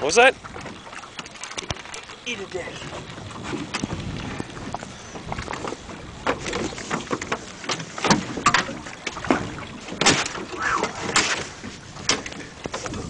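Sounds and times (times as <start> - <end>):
fishing rod knocking against boat: 5.3 - 13.0.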